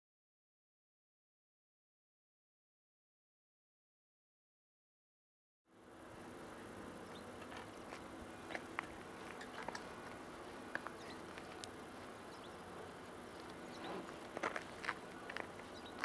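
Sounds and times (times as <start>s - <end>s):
distant diesel locomotive drone: 5.7s - 16.0s.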